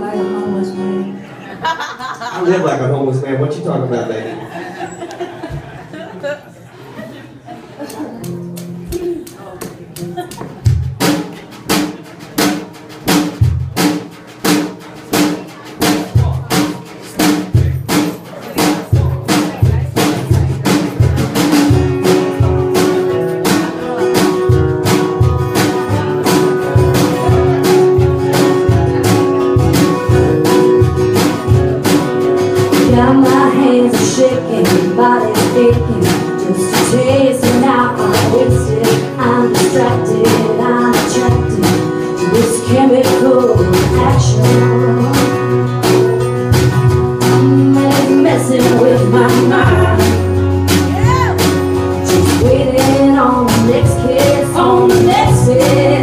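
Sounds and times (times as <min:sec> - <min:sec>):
women singing: 0:00.0 - 0:01.3, 0:32.7 - 0:45.6, 0:47.2 - 0:50.2, 0:52.0 - 0:56.0
country band playing: 0:00.0 - 0:56.0
drum kit beat: 0:07.9 - 0:56.0.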